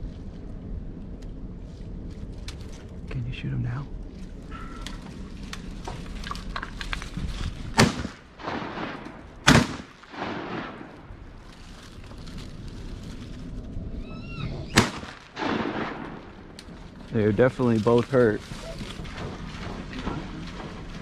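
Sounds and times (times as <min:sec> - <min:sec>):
shotgun shots with echo: 0:07.8 - 0:11.1, 0:14.8 - 0:16.5.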